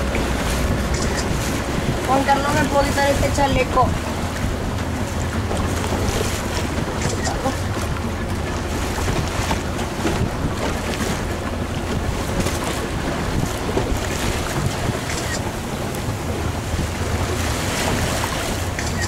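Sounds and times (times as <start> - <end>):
sea water splashing around boat: 0.0 - 19.0
wind buffeting microphone: 0.0 - 19.0.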